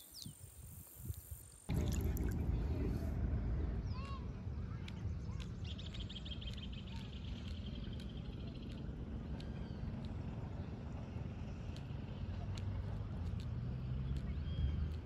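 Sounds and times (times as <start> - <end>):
steady low rumble: 0.7 - 15.0
birds chirping: 3.6 - 15.0.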